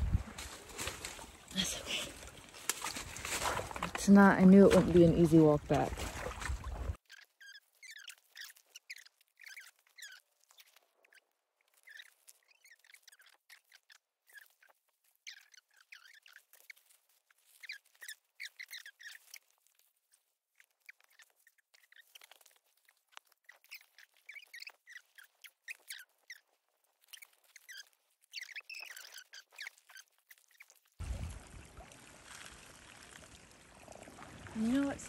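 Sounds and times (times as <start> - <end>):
footsteps crunching twigs and leaves: 0.0 - 7.0, 31.0 - 34.2.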